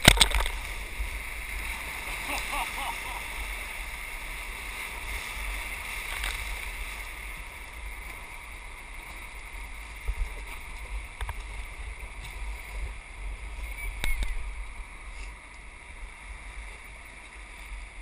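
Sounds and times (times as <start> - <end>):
whitewater rapids rushing: 0.0 - 11.1.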